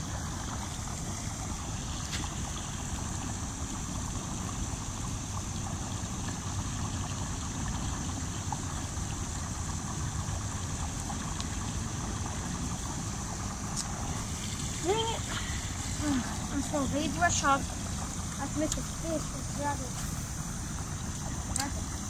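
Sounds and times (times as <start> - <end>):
high-pitched hiss: 13.1 - 22.0
faint ticks: 18.6 - 18.8, 21.5 - 21.8.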